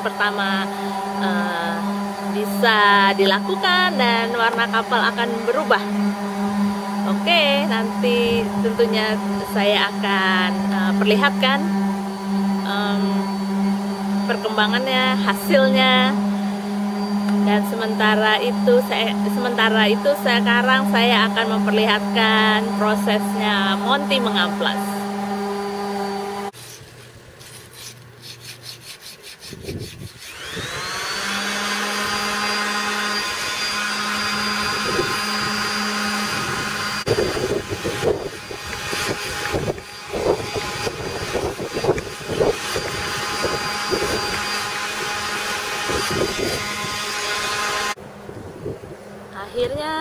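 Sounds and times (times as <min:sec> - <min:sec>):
electric power sander whining: 0:00.0 - 0:27.0, 0:29.5 - 0:48.0.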